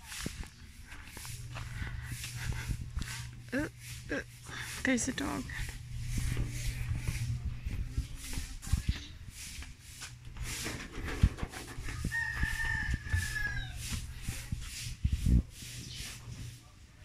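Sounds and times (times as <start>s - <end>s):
rooster crowing: 11.8s - 14.0s.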